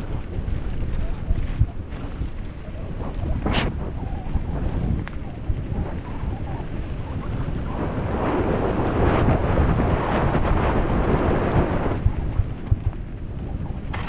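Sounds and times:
bike tyres rolling over gravel: 0.0s - 14.0s
wind buffeting microphone: 0.0s - 14.0s.

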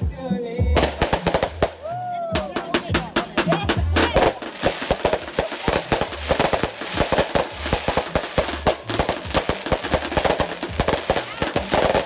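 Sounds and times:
firework crackling pops and bangs: 0.7s - 12.0s
hiss of sparks: 4.2s - 12.0s.

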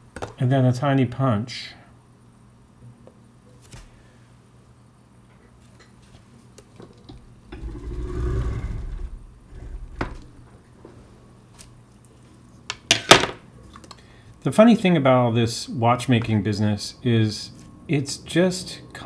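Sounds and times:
low shuffling rumble: 7.2s - 11.2s.

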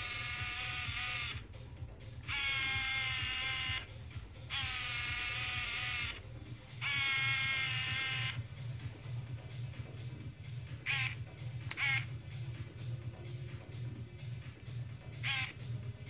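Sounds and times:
camera lens zoom motor whining: 0.0s - 1.4s, 2.2s - 8.4s, 10.8s - 12.1s, 15.2s - 15.6s.

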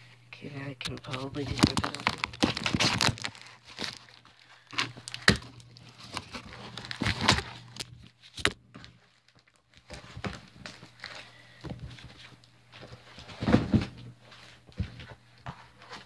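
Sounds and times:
package rustling and tearing: 0.8s - 11.2s.

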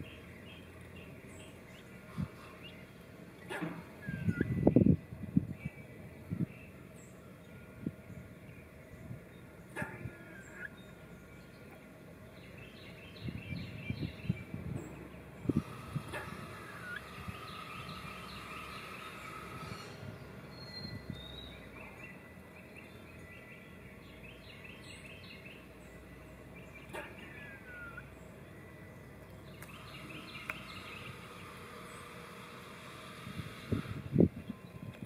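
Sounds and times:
squirrel scolding calls: 9.7s - 10.9s, 15.4s - 20.0s.

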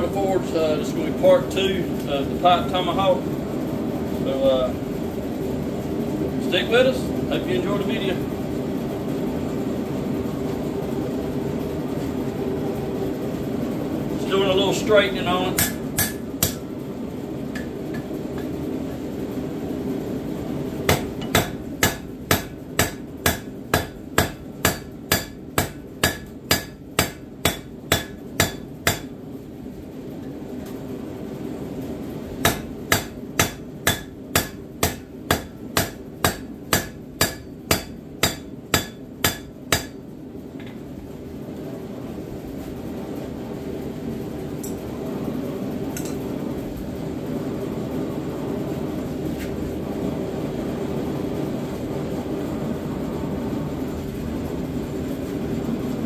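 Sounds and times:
hammer striking steel on anvil: 15.6s - 16.6s, 20.9s - 29.1s, 32.4s - 40.0s.

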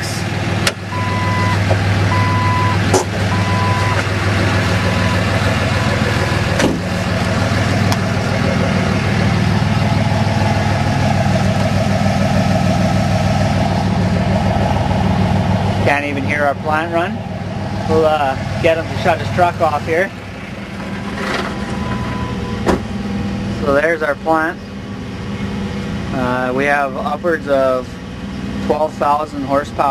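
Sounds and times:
diesel pickup engine idling: 0.0s - 29.9s
short electronic beeps: 0.9s - 4.0s.

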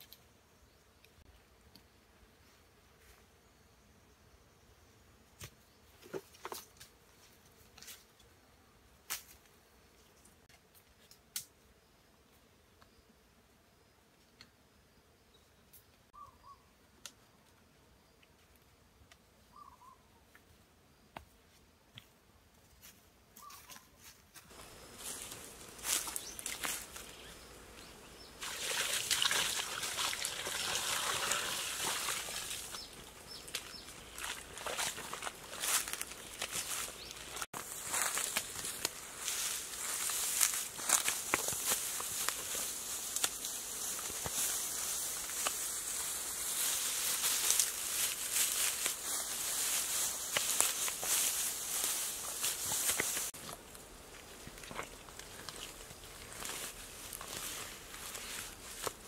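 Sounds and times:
water pouring and splashing: 28.4s - 36.4s
hand scraping soil: 28.4s - 59.0s
bamboo sticks clicking and knocking: 43.1s - 44.5s.

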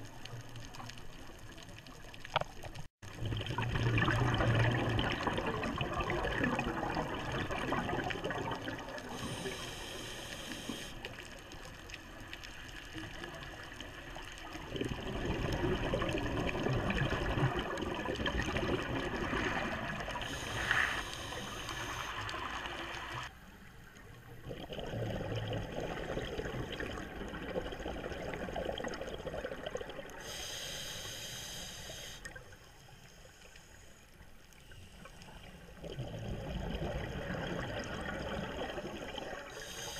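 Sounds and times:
underwater bubbles gurgling: 0.0s - 39.9s
regulator hiss: 9.1s - 11.3s, 20.2s - 23.0s, 30.2s - 32.3s, 39.6s - 39.9s.

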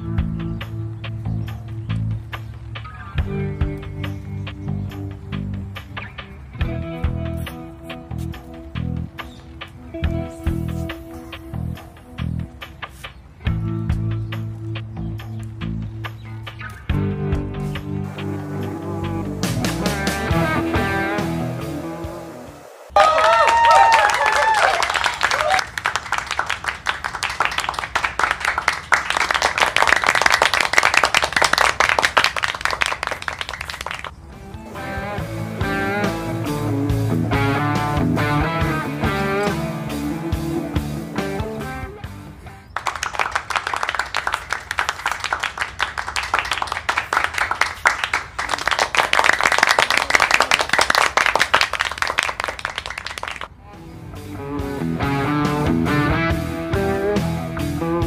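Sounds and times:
crowd applauding: 22.9s - 34.2s, 42.8s - 53.5s.

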